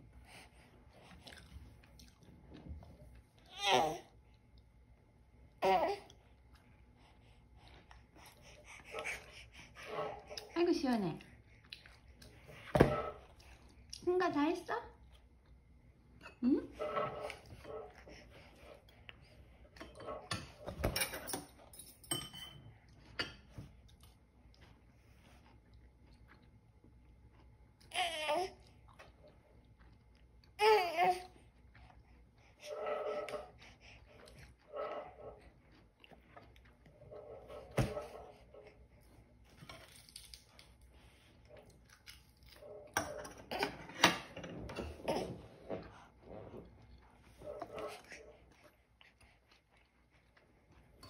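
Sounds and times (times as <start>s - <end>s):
cutlery and dishes clinking: 19.8s - 23.6s.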